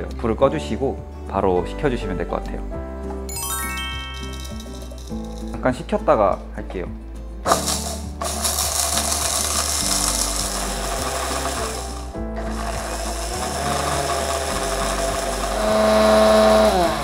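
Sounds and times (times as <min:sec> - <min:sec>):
hand blender grinding spices: 0:07.5 - 0:17.0.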